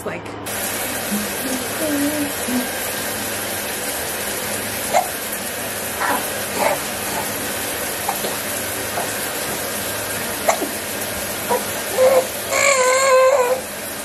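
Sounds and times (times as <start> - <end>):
shower spray running: 0.4 - 14.0
faint baby noises: 11.5 - 13.6.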